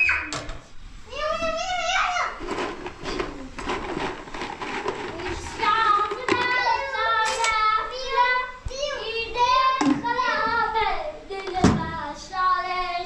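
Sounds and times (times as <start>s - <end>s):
handling plastic and glassware: 2.4s - 7.6s
child singing: 5.6s - 13.0s.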